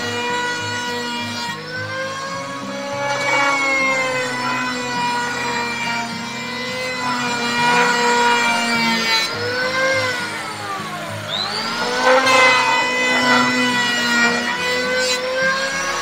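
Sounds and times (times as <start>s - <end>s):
electric hand planer whining: 0.0s - 16.0s
planer blades rasping over wood: 0.0s - 16.0s.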